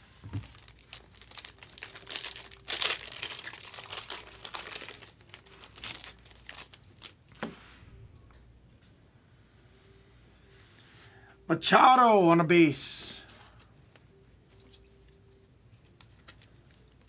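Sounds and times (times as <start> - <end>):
plastic packaging crinkling: 0.2 - 7.3.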